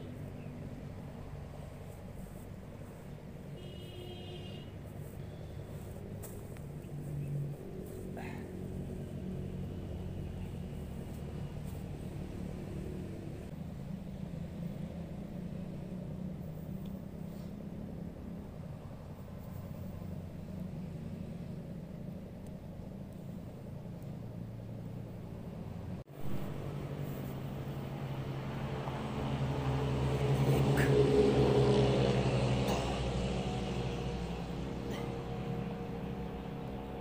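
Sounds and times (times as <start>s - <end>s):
low outdoor rumble: 0.0s - 37.0s.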